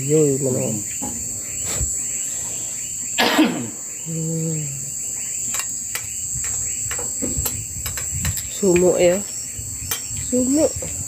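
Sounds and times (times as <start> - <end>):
crickets chirping: 0.0 - 11.0
person coughing: 3.2 - 3.8.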